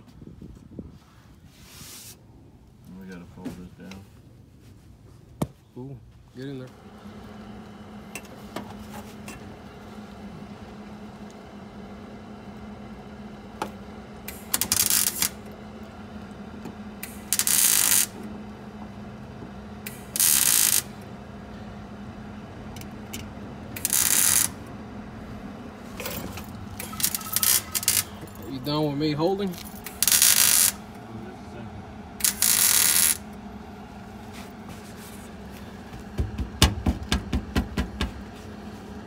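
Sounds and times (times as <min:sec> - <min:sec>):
crackling welding arc: 0:14.3 - 0:15.5, 0:17.0 - 0:18.2, 0:19.9 - 0:21.0, 0:23.8 - 0:24.6, 0:26.6 - 0:28.5, 0:29.4 - 0:30.9, 0:32.2 - 0:33.3.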